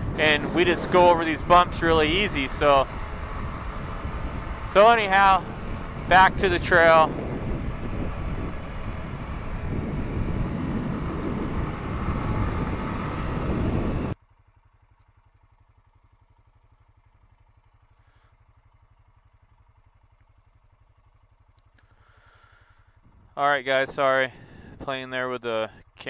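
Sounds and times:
faint low pulsing: 0:00.0 - 0:14.2
atv engine running: 0:00.0 - 0:26.0.

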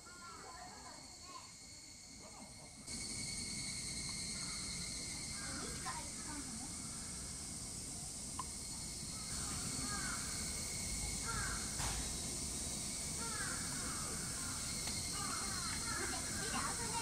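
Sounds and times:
steady high hiss: 0:00.0 - 0:17.0
sharp knock: 0:11.8 - 0:12.1.

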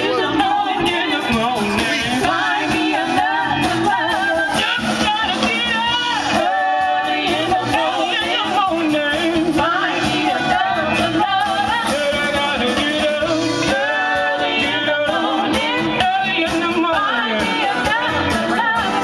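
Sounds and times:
live band playing: 0:00.0 - 0:19.0.

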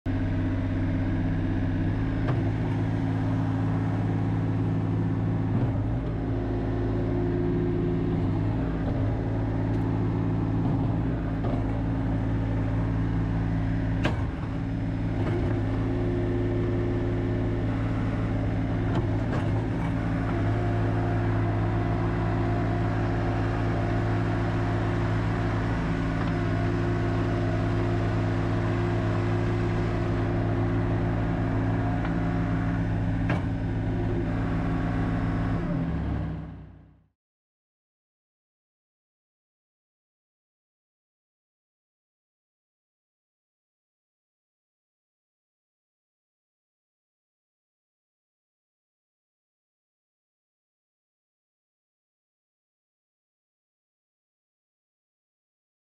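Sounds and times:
diesel loader engine running: 0:00.1 - 0:37.1.

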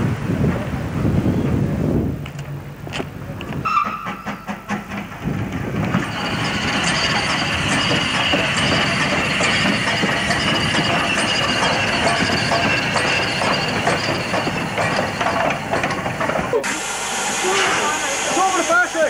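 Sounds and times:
steam locomotive rumble: 0:00.0 - 0:19.0
steam hissing: 0:05.9 - 0:19.0.

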